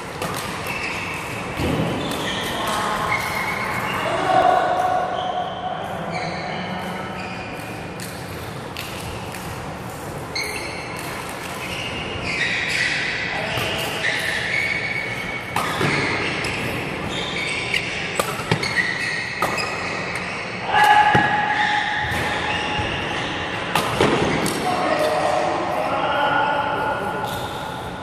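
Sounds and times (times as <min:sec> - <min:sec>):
racket hitting shuttlecock: 0:00.1 - 0:03.7, 0:15.2 - 0:17.0, 0:17.6 - 0:22.8, 0:23.6 - 0:25.2
shoes squeaking on wooden court: 0:00.1 - 0:25.4.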